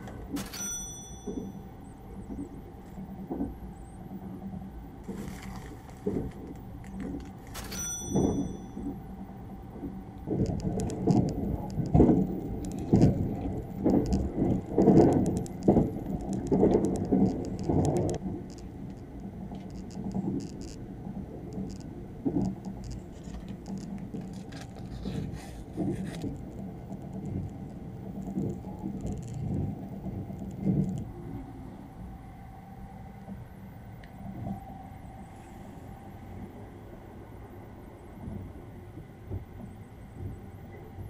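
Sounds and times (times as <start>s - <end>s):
train running rumble: 0.0s - 41.0s
sharp click with ring: 0.4s - 1.5s
plastic wrapping crinkling: 5.1s - 7.8s, 22.9s - 27.4s.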